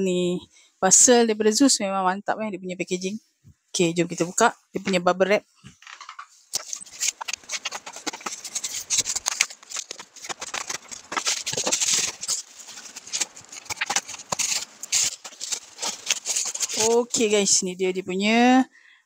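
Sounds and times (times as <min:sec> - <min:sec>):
bubble wrap crinkling: 0:05.9 - 0:17.6
scissors cutting bubble wrap: 0:06.6 - 0:17.6.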